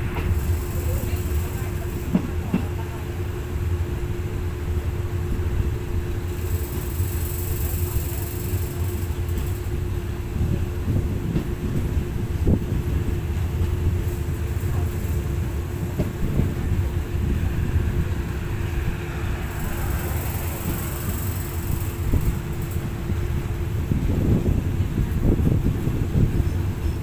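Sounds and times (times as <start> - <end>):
train rumbling on track: 0.0 - 27.0
wind buffeting microphone: 8.8 - 27.0.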